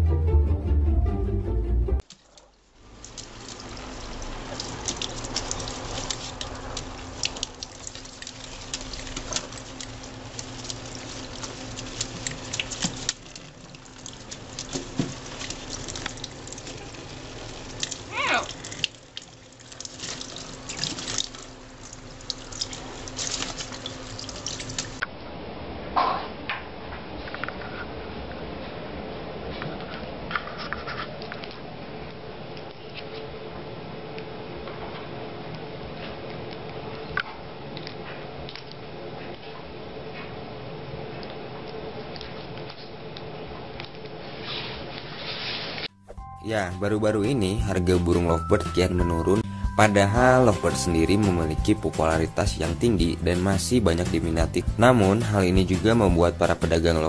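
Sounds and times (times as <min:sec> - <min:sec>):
parrot flapping and splashing: 0:02.1 - 0:25.0, 0:43.7 - 0:45.9
tap water running into sink: 0:02.9 - 0:25.0.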